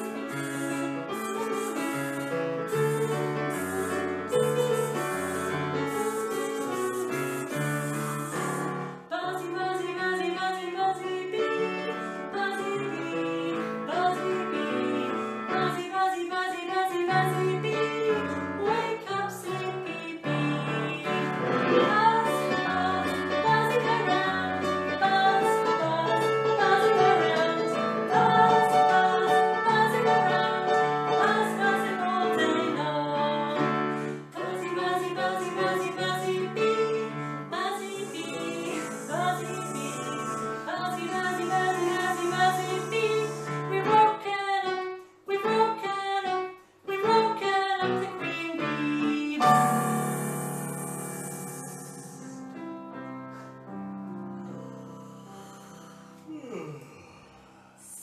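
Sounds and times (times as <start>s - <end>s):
electronic keyboard: 0.0s - 9.0s, 49.4s - 55.1s
woman singing: 2.7s - 6.7s, 9.1s - 51.6s.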